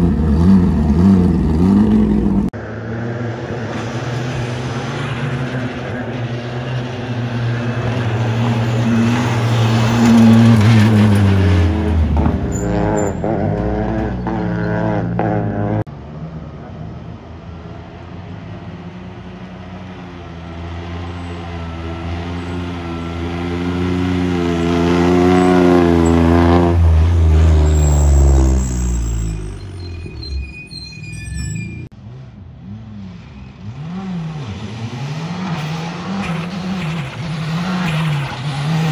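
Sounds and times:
rally car engine passing: 0.0s - 29.8s.

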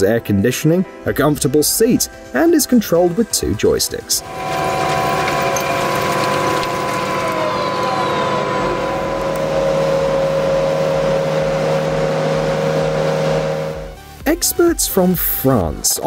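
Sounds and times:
compost turner mechanical drone: 3.7s - 14.2s.

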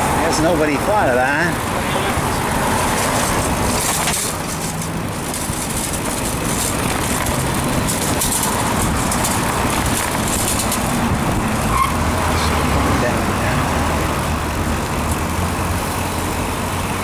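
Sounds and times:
road traffic passing: 0.0s - 17.0s
wind rumble on microphone: 2.2s - 12.9s.

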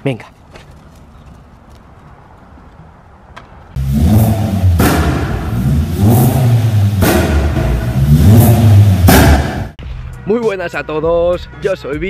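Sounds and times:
engine revving: 3.8s - 9.8s
sharp hits: 3.8s - 9.8s.

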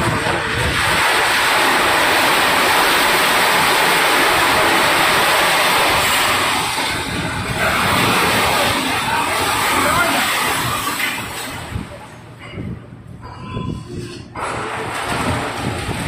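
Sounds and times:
scrap metal pouring: 0.4s - 11.7s.

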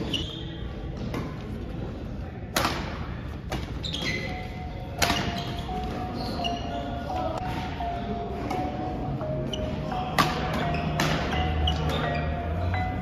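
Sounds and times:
sneakers squeaking on court floor: 0.0s - 1.5s, 3.2s - 12.9s
racket striking shuttlecock: 5.0s - 5.4s.

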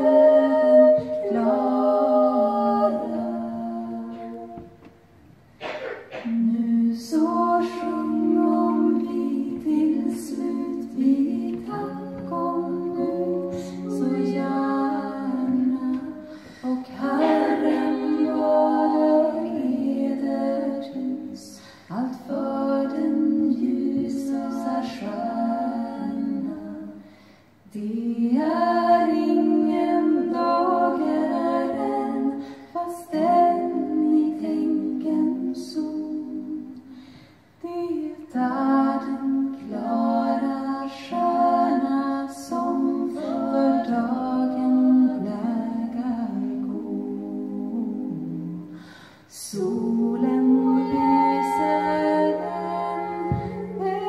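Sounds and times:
women singing a cappella harmony: 0.0s - 5.2s, 6.1s - 54.0s
singers breathing: 16.2s - 16.8s, 21.6s - 21.9s, 27.0s - 27.6s, 36.8s - 37.6s, 48.7s - 49.3s.

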